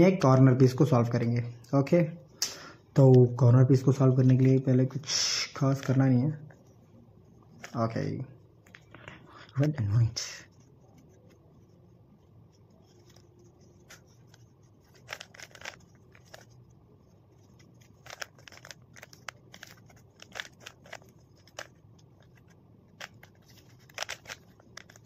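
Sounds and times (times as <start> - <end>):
plastic puzzle cube clicking: 14.0 - 16.5, 17.8 - 25.0.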